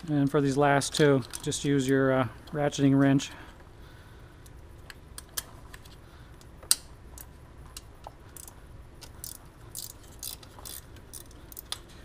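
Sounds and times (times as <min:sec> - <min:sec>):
ratchet wrench clicking: 0:06.7 - 0:12.0.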